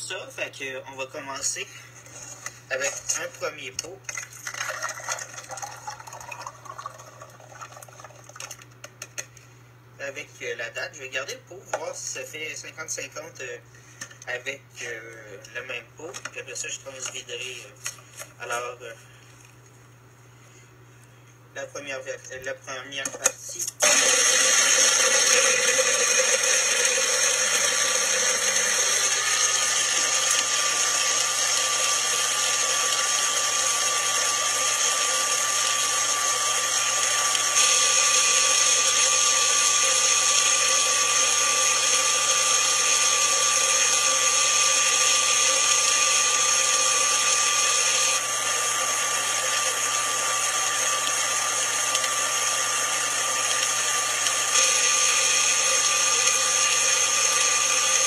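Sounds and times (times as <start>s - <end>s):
blender motor running: 23.8s - 58.0s.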